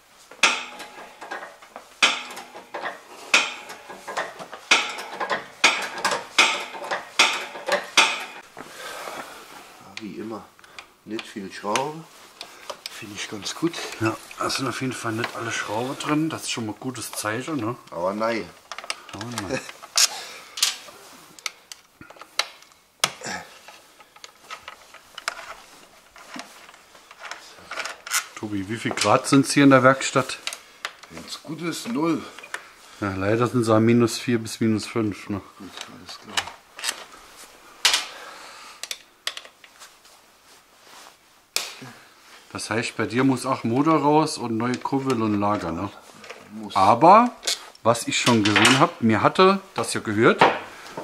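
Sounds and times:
hand tools clicking on screws: 0:00.4 - 0:08.4
lift table lever clanking: 0:00.4 - 0:08.4.

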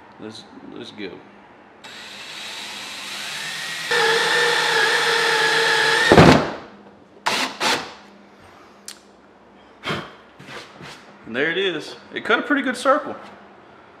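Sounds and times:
cordless drill cutting plastic: 0:01.9 - 0:06.2.

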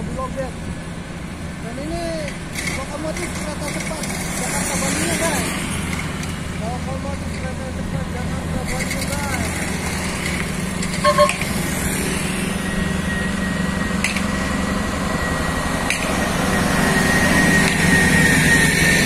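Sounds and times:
truck diesel engine running: 0:00.0 - 0:19.0
steady high whine: 0:10.5 - 0:19.0
double horn beep: 0:11.0 - 0:11.7.

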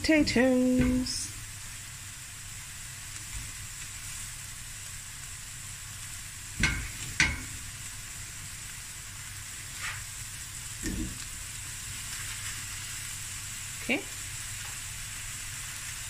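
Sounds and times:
chicken sizzling in a frying pan: 0:00.0 - 0:16.0
food knocking into a pan: 0:06.6 - 0:07.6, 0:10.8 - 0:11.2.

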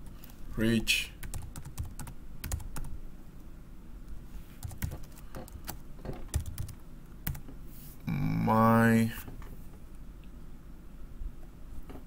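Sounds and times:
keyboard typing: 0:01.2 - 0:03.0, 0:04.6 - 0:07.4.

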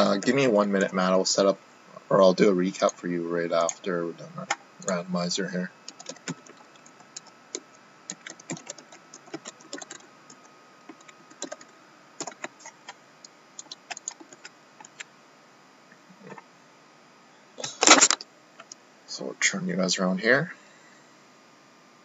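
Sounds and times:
typing on computer keyboard: 0:05.9 - 0:13.0, 0:13.6 - 0:15.1.

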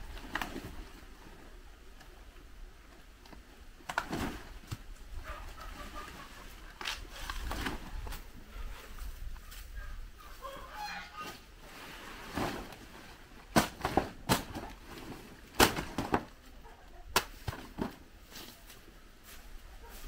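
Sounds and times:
chickens clucking: 0:05.1 - 0:12.1, 0:16.4 - 0:17.2.

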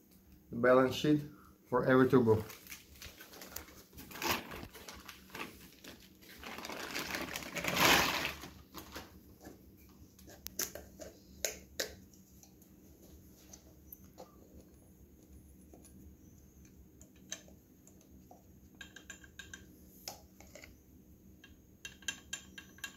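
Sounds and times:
plastic and paper crinkling: 0:02.3 - 0:09.2.

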